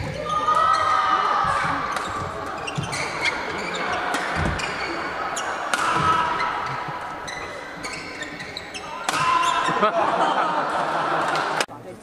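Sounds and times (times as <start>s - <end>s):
shoes squeaking on floor: 0.0s - 9.9s
racket striking shuttlecock: 1.4s - 4.8s, 5.6s - 7.0s, 9.0s - 9.6s.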